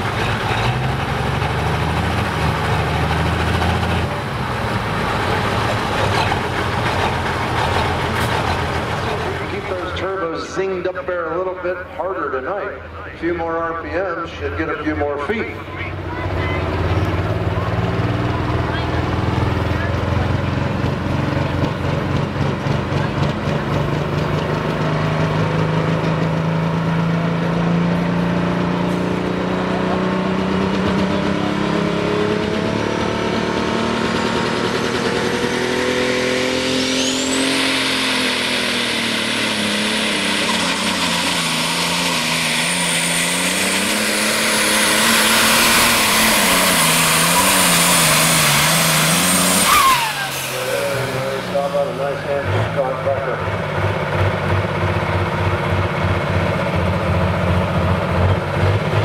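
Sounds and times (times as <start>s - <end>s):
diesel engine under load: 0.0s - 59.0s
turbo whistle: 36.7s - 37.9s, 49.6s - 50.6s.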